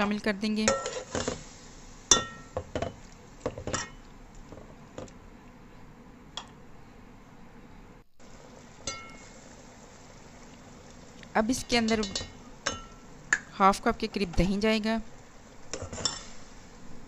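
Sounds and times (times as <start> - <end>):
metal spatula clinking on pot: 8.8 - 9.2, 11.8 - 13.0.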